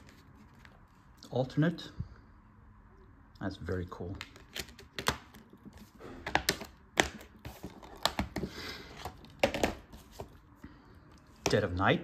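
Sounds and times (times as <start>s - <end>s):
plastic cases clicking: 6.2s - 9.8s.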